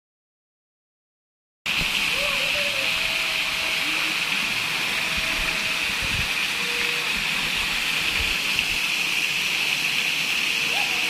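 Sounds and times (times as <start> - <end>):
waterfall pouring into pool: 1.7 - 11.0.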